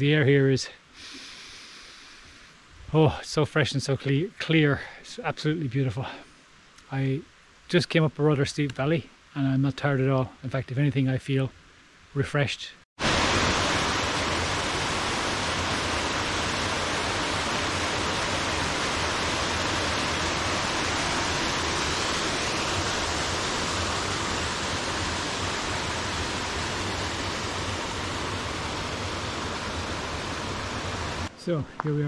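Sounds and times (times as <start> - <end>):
small waterfall over rock: 13.0 - 31.3.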